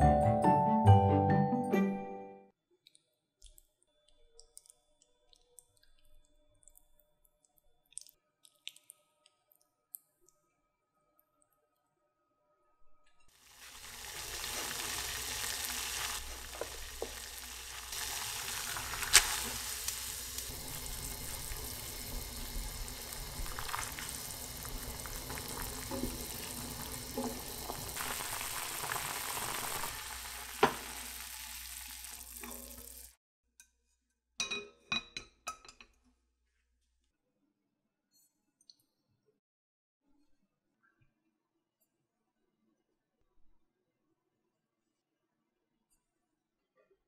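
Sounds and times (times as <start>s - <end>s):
water boiling in a pot: 13.3s - 33.2s.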